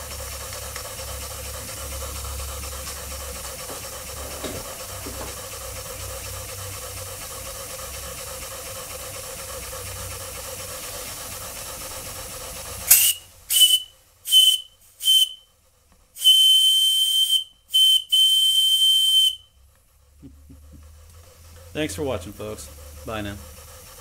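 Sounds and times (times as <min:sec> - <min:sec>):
steam engine hissing: 0:00.0 - 0:24.0
steam whistle toots: 0:12.8 - 0:15.6, 0:16.2 - 0:19.6.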